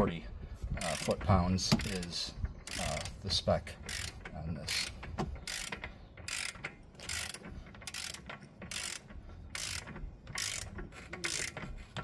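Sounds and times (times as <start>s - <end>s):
torque wrench ratchet clicking: 0.8s - 11.6s.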